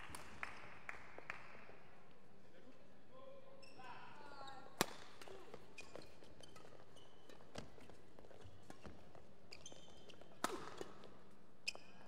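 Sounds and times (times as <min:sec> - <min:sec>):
shoes squeaking on court: 0:05.2 - 0:12.0
racket striking shuttlecock: 0:10.4 - 0:11.1.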